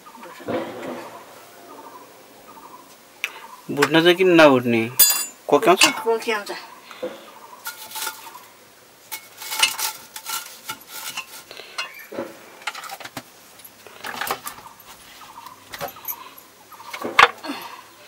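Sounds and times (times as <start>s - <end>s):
metal pots and utensils clinking: 5.0s - 6.2s, 7.6s - 14.6s.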